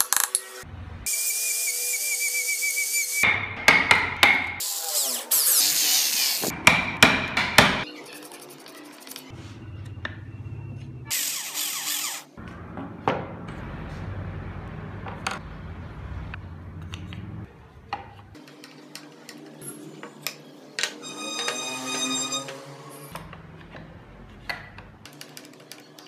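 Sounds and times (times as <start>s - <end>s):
rotary tool drilling into wood: 11.1s - 12.3s.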